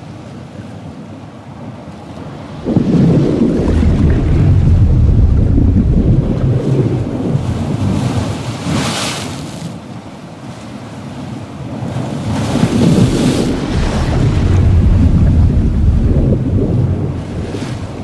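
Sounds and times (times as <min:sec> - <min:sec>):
low rumble of surf: 0:00.0 - 0:18.0
hissing wave washes: 0:02.3 - 0:09.5, 0:12.4 - 0:18.0.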